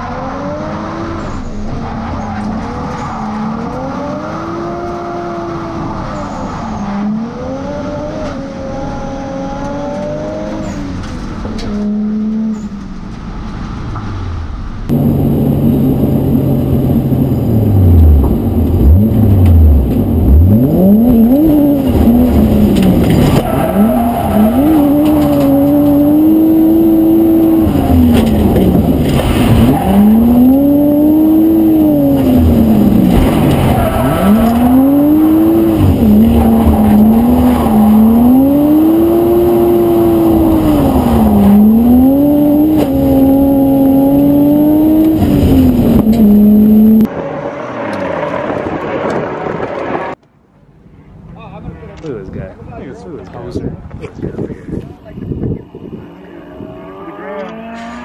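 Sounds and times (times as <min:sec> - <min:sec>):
car engine revving: 0:13.9 - 0:50.2.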